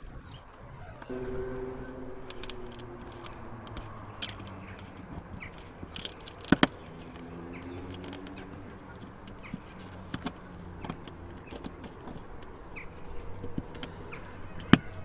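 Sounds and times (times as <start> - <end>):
low steady hum: 1.1 - 8.4.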